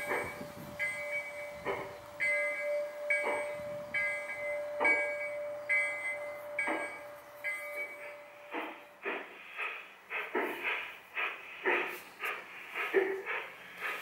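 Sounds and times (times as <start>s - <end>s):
locomotive bell ringing: 0.0s - 9.4s
model steam locomotive chuffing: 0.0s - 14.0s.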